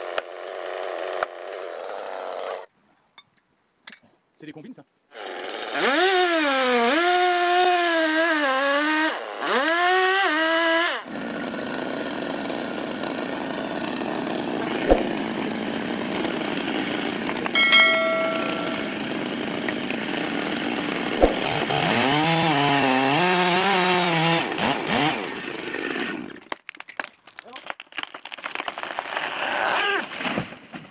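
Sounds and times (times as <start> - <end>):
chainsaw cutting wood: 0.0 - 2.7, 5.1 - 26.6.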